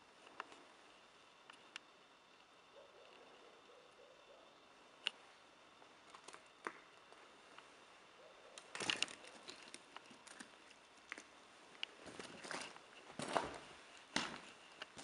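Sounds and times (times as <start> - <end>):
footsteps crunching over rubble: 8.7 - 15.0.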